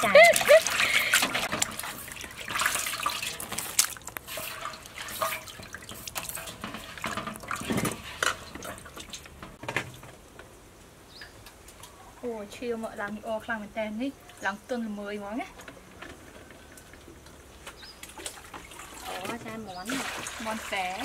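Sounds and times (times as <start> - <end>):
water splashing and dripping: 0.0 - 10.0, 16.7 - 21.0.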